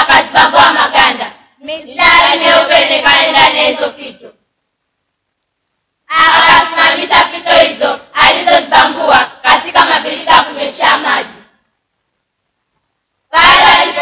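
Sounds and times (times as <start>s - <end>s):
children singing in unison: 0.0s - 4.2s, 6.1s - 11.5s, 13.3s - 14.0s.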